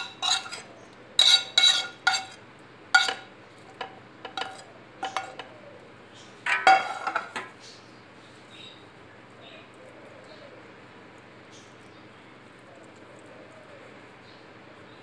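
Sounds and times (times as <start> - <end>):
cookware clattering: 0.0 - 2.4, 3.0 - 5.6, 6.4 - 7.5
spoon scraping a frying pan: 0.0 - 2.4, 3.0 - 5.6, 6.4 - 7.5.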